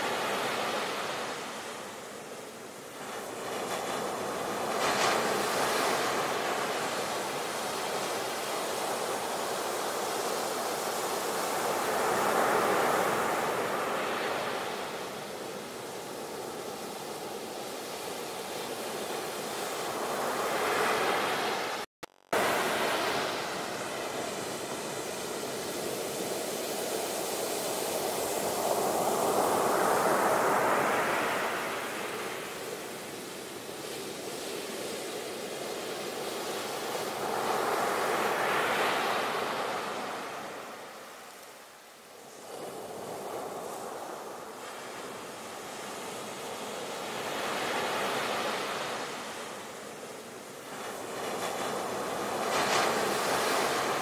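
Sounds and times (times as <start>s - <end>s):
sea waves washing in: 0.0s - 54.0s.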